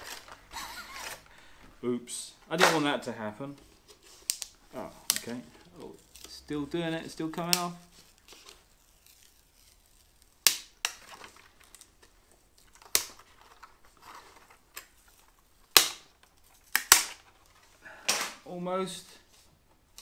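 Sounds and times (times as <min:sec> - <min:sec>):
faint crackling tearing: 0:03.9 - 0:17.8
wood veneer cracking as peeled: 0:04.0 - 0:17.8.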